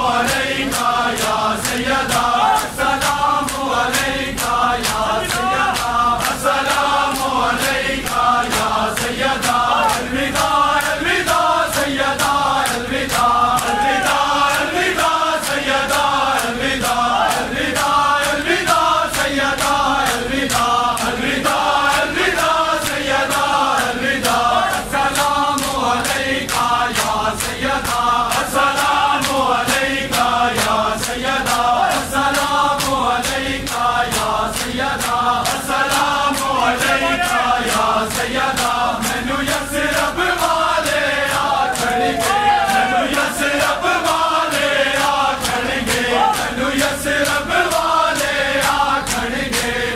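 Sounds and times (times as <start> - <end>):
men chanting together: 0.0 - 49.9
hands beating chests: 11.7 - 21.2, 40.4 - 48.0.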